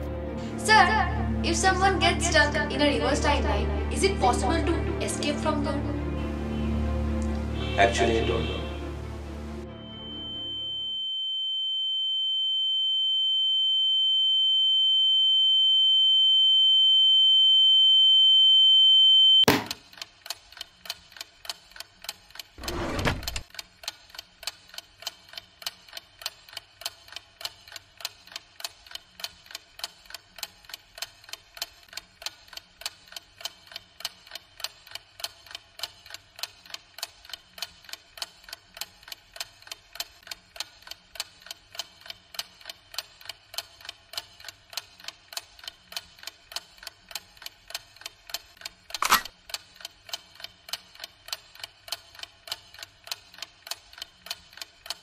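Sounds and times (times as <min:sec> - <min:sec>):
sharp knock: 0:19.5 - 0:19.8
clock ticking: 0:23.2 - 0:55.0.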